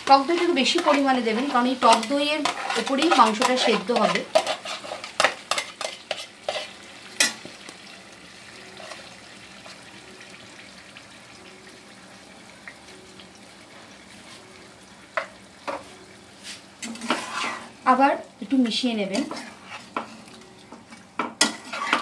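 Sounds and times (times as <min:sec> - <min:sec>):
chicken sizzling in a pan: 0:00.0 - 0:22.0.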